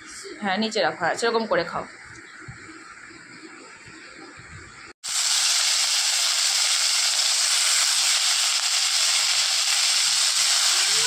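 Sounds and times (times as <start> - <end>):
vegetables sizzling in hot oil: 5.0 - 11.0.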